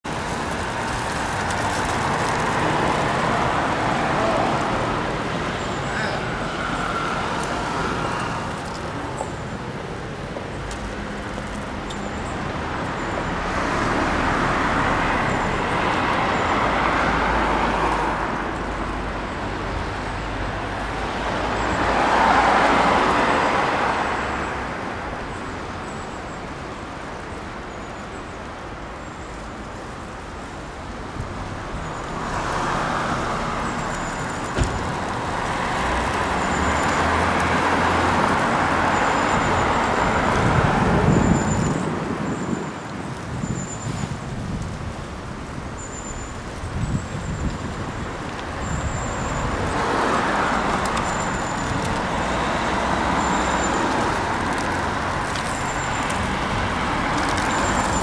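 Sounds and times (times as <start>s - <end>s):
background traffic: 0.0s - 58.0s
cars driving past: 10.7s - 24.8s, 31.5s - 46.6s, 47.2s - 58.0s.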